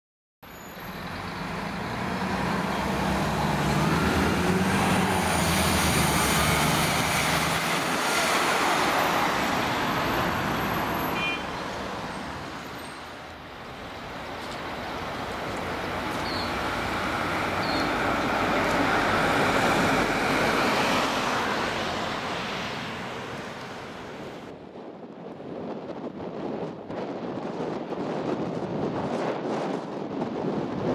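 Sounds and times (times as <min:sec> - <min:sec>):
cars passing by: 0:00.5 - 0:24.7.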